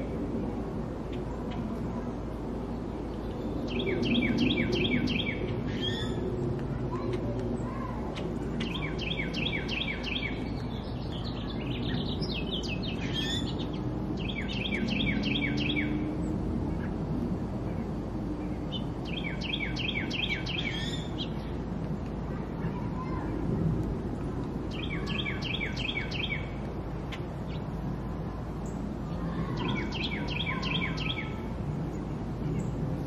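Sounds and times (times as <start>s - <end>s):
birds chirping: 0.0s - 21.8s, 24.4s - 33.0s
low background noise: 0.0s - 33.0s
songbird singing repeated notes: 2.6s - 17.0s, 17.8s - 21.6s, 24.6s - 27.8s, 28.6s - 32.8s.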